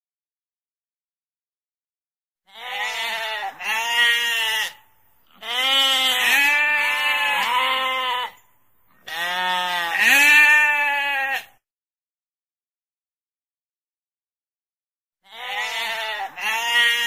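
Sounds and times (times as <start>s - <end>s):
sheep bleating: 2.5s - 8.4s, 9.0s - 11.6s, 15.2s - 17.0s.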